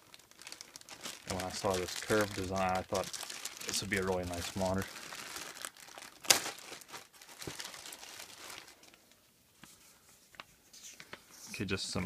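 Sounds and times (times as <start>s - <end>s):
plastic bag crinkling: 0.0s - 9.1s
paper sheets rustling: 1.2s - 4.8s.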